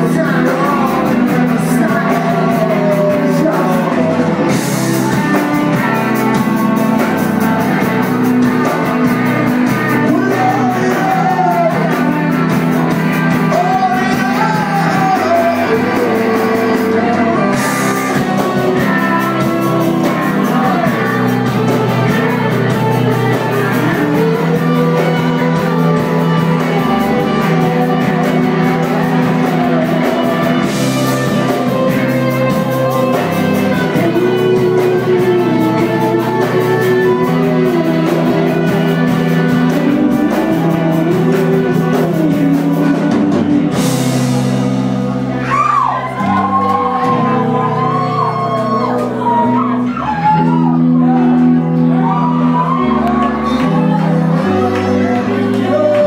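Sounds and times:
bass guitar: 0:00.0 - 0:56.0
electric guitar: 0:00.0 - 0:56.0
person singing: 0:00.0 - 0:56.0.

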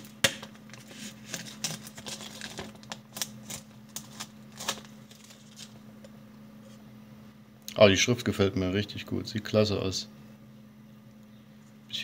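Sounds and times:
plastic film peeling and crinkling: 0:00.7 - 0:05.8.

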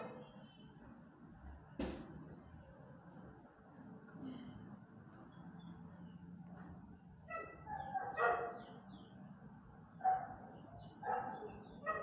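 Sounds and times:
dog barking: 0:07.3 - 0:08.7, 0:10.0 - 0:12.0.

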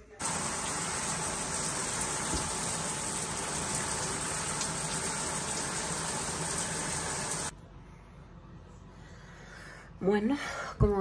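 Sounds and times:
shower spray hitting wall: 0:00.2 - 0:07.5.

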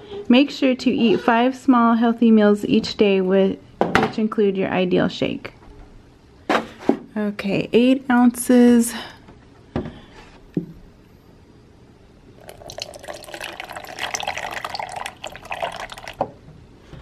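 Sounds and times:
milk pouring into plastic bottle: 0:12.4 - 0:16.2.

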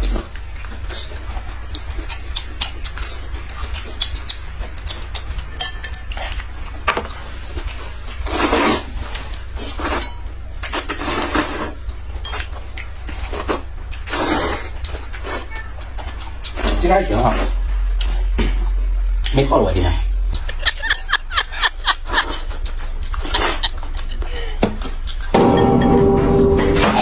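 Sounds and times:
chopsticks clicking against bowls: 0:00.5 - 0:06.8, 0:11.9 - 0:14.0, 0:22.2 - 0:24.2
noodles slurped loudly: 0:13.4 - 0:15.5.

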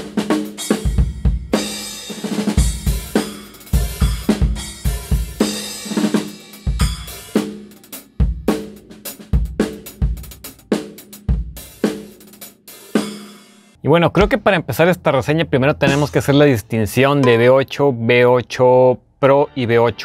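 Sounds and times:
kick snare and hi-hat groove: 0:00.0 - 0:13.6.

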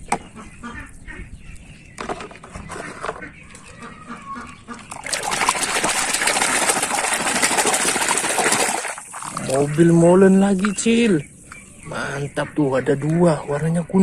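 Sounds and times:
plastic toy trucks clattering: 0:02.0 - 0:03.8
water splashing in basin: 0:04.3 - 0:10.9.

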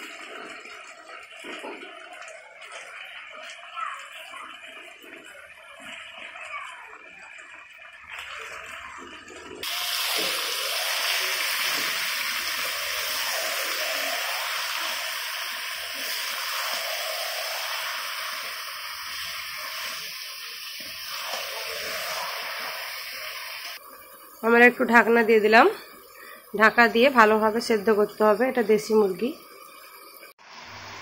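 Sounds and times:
meat sizzling in hot oil: 0:09.6 - 0:31.0.

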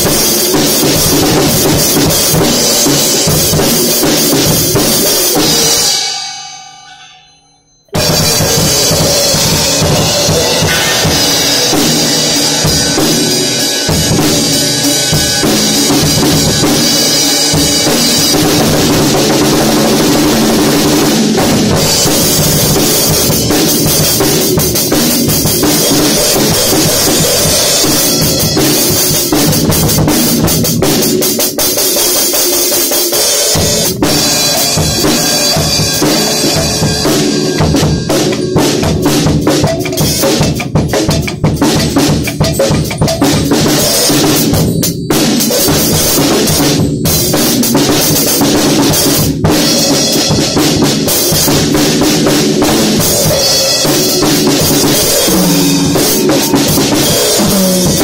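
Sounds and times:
drum kit played loudly: 0:00.0 - 0:58.0.

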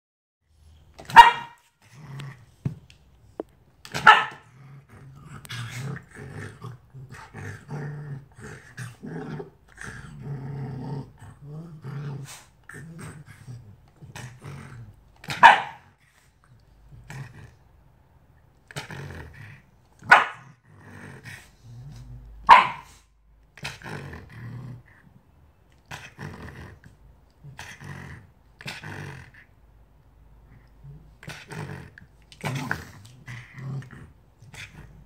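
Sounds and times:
low growling and chatter: 0:04.5 - 0:15.0.

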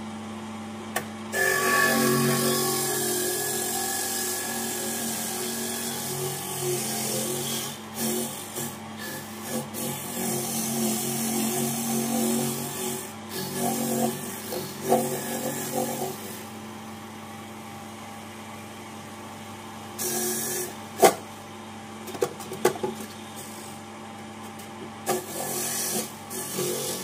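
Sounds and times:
electric grater motor hum: 0:01.3 - 0:17.6, 0:20.0 - 0:21.2, 0:25.0 - 0:27.0.

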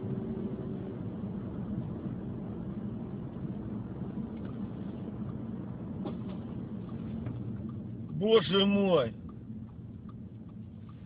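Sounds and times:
car engine and tyre noise: 0:00.0 - 0:11.0
faint ticks: 0:09.2 - 0:11.0.

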